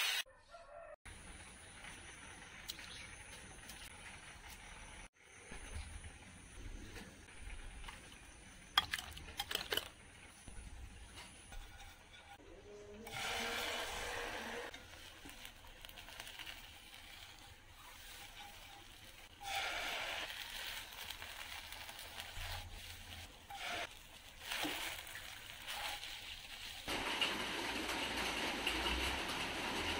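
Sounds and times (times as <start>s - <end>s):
egg sizzling in frying pan: 13.1s - 29.9s.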